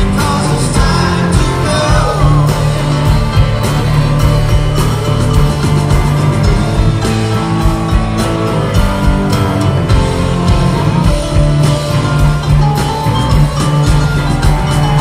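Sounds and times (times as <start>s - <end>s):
live country-rock band: 0.0s - 15.0s.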